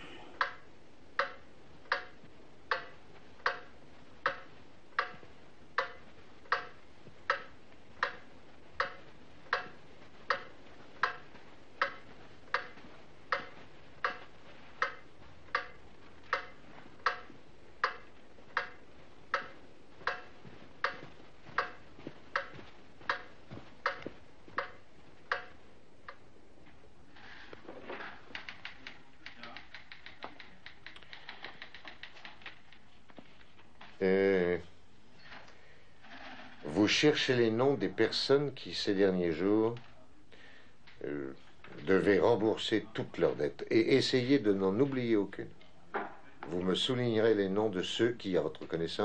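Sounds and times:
clock ticking: 0.0s - 26.4s.

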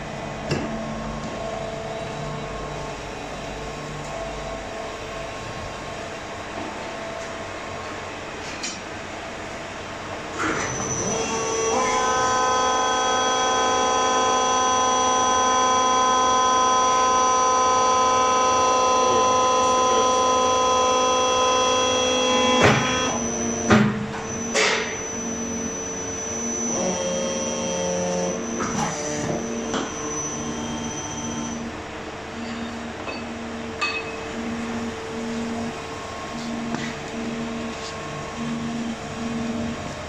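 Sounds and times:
forging press humming: 10.3s - 40.0s
low pulsing hum: 24.9s - 40.0s.

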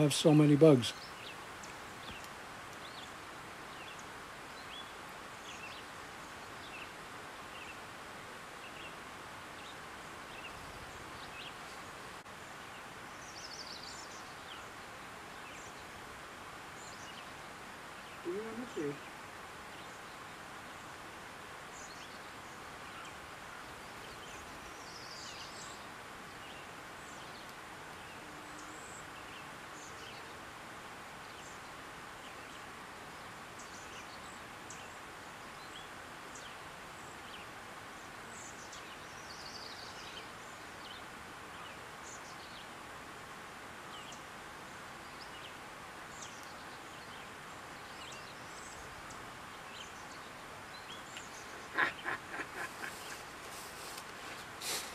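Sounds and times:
background hiss: 0.0s - 54.9s
bird chirps: 50.8s - 53.4s.

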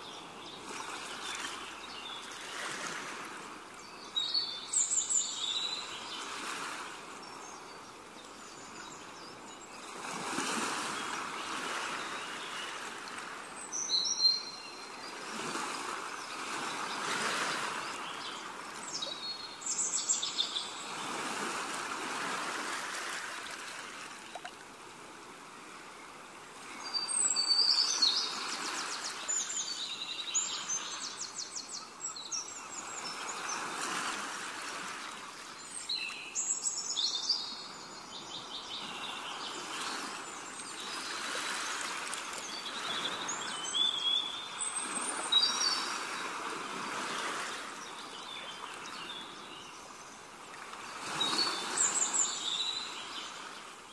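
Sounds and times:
small birds chirping and trilling: 3.8s - 6.5s, 35.1s - 46.3s, 47.4s - 53.9s.

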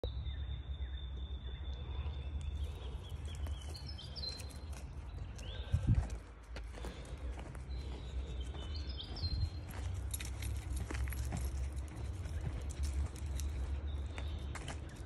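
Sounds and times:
birds whistling: 0.1s - 6.2s
footsteps crunching on dry leaves: 2.6s - 15.0s
wind rumble on microphone: 3.2s - 6.4s, 7.4s - 15.0s.

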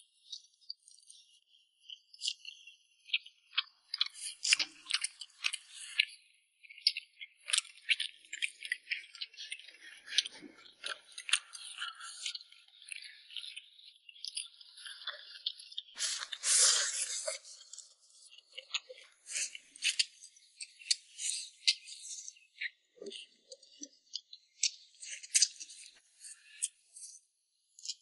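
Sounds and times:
people chewing food: 0.2s - 28.0s
sharp clicks and scrapes: 3.9s - 6.0s, 14.2s - 22.3s.

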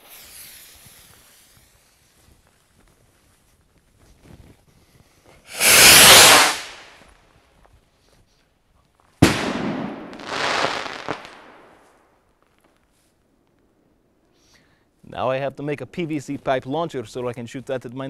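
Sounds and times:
firework hiss: 0.0s - 2.5s, 5.4s - 7.0s
firework bang: 5.5s - 6.9s, 9.2s - 11.8s
rocket launching whoosh: 5.5s - 6.9s.

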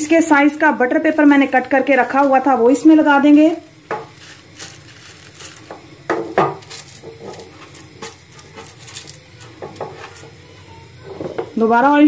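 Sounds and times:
paper rustling and crinkling: 4.1s - 5.7s, 6.6s - 9.2s.

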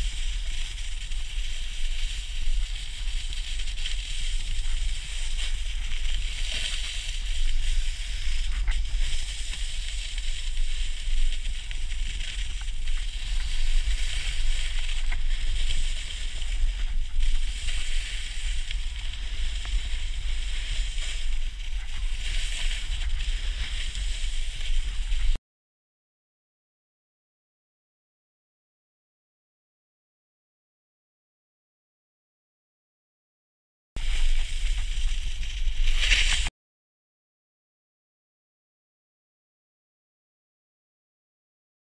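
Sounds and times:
snowboard scraping over snow: 0.0s - 25.4s, 34.0s - 36.5s.

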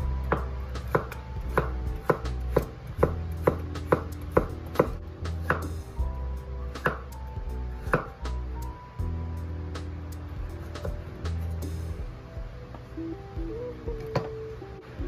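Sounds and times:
quiet background music: 0.0s - 15.0s
knife chopping on wooden board: 0.3s - 5.7s, 6.8s - 7.1s, 7.9s - 8.1s.

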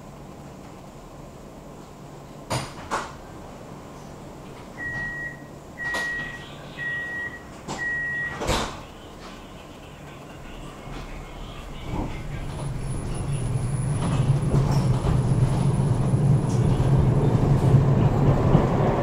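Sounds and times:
tram doors shutting with a thump: 2.4s - 9.5s, 10.6s - 19.0s
short high beeps: 4.8s - 8.4s.

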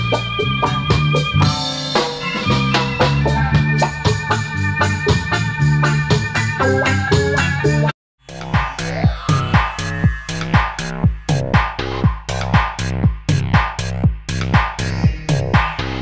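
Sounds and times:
organ-like keyboard chords: 0.0s - 12.5s
bass line: 0.0s - 16.0s
steady drum beat: 8.2s - 16.0s.

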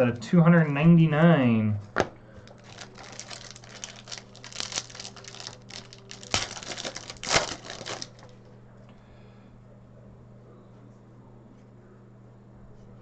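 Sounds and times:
card pack crinkling and rustling: 2.4s - 8.4s.

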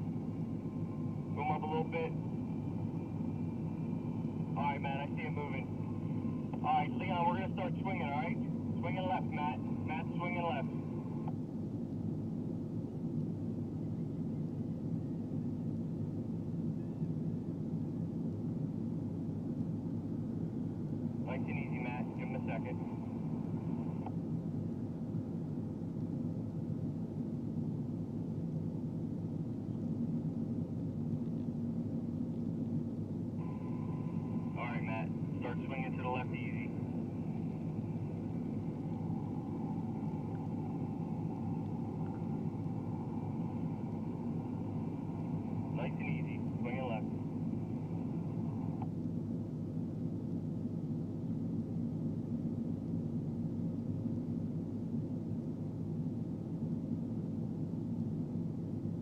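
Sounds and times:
crane diesel engine humming: 33.4s - 48.8s.

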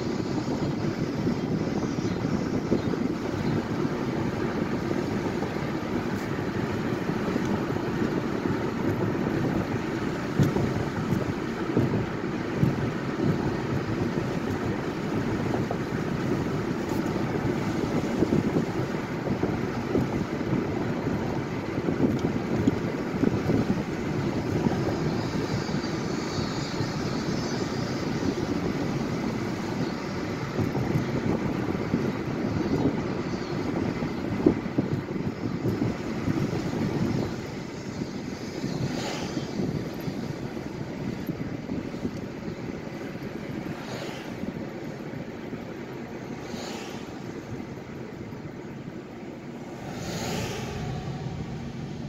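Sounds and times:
car driving rumble: 0.0s - 52.0s
wind buffeting on microphone: 0.0s - 52.0s.

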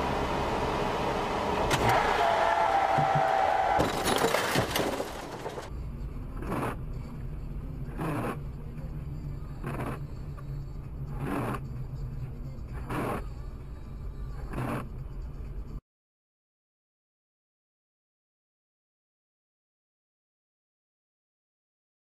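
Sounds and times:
car engine humming: 0.0s - 15.8s
car collision: 1.6s - 5.7s.

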